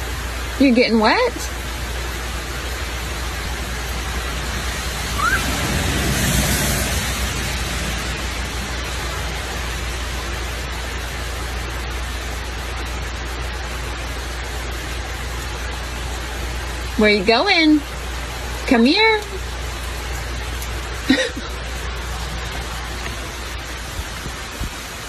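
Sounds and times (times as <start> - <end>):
rain on a wooden deck: 0.0 - 25.0
short rising squeak: 5.1 - 5.6.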